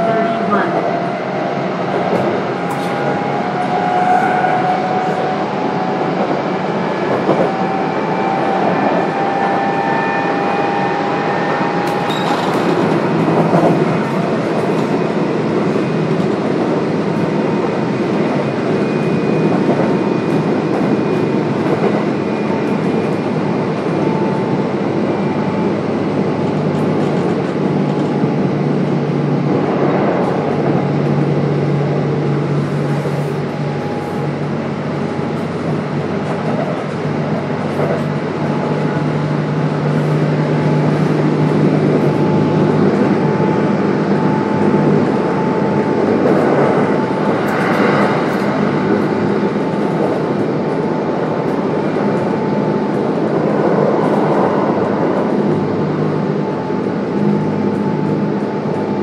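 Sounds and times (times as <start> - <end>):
train wheels rumbling on rail: 0.0 - 59.0
sharp rail noise: 44.2 - 50.9.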